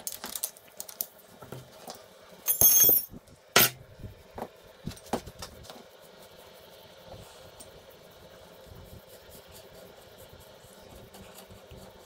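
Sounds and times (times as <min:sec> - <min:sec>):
ringing metallic clink: 0:02.5 - 0:03.8.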